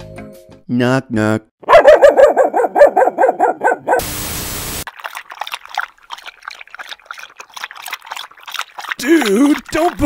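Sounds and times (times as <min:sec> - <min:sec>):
dog barking: 0:01.6 - 0:04.1
water trickling and lapping: 0:04.9 - 0:10.0.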